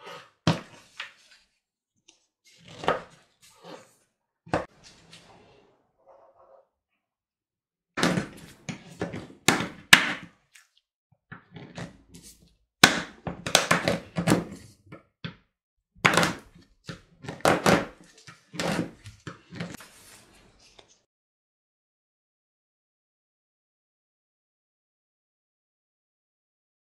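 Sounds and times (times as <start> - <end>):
knife chopping on wooden board: 12.8 - 14.6, 16.0 - 16.5.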